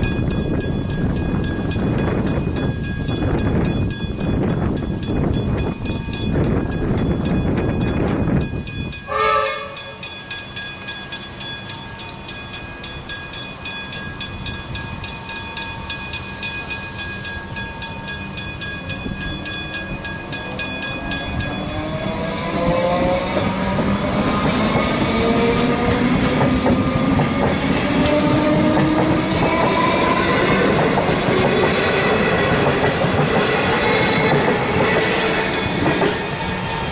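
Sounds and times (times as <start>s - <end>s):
level crossing bells ringing: 0.0s - 23.3s, 35.2s - 36.9s
electric train motors whining: 7.9s - 36.9s
train horn blast: 9.1s - 10.0s.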